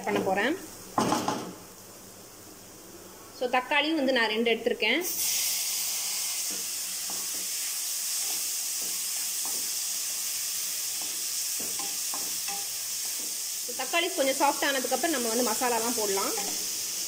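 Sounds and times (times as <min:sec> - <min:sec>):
vegetables sizzling in hot oil: 0:00.0 - 0:02.9, 0:05.0 - 0:17.0
spatula scraping a pan: 0:06.4 - 0:13.5.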